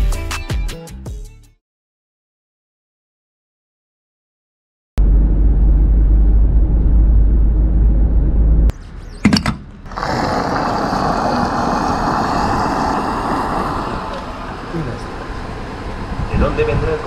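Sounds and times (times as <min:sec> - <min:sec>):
vehicle engine rumble: 0:05.0 - 0:17.0.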